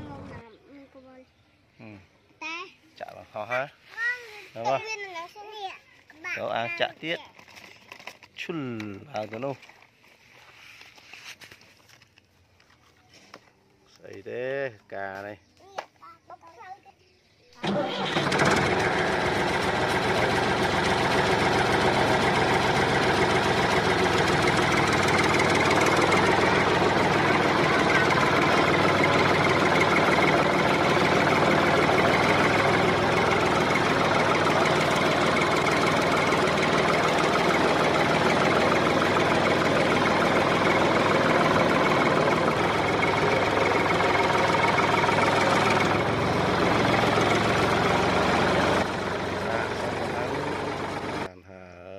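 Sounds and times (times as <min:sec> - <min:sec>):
engine idling: 0:00.0 - 0:00.5, 0:17.6 - 0:51.3.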